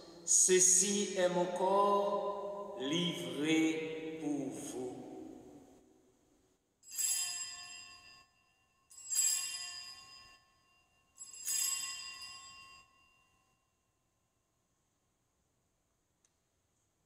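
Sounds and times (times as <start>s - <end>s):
altar bell ringing: 6.8s - 13.8s.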